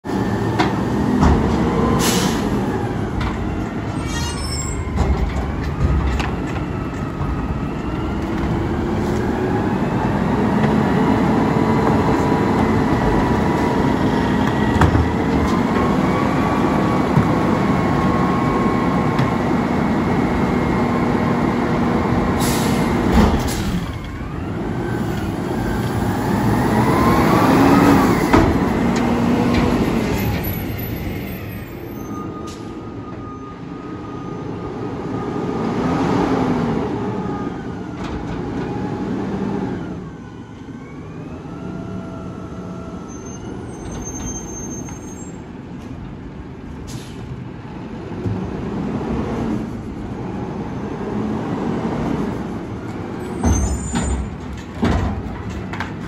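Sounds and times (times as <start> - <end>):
trash carts banging on container: 53.3 - 56.0.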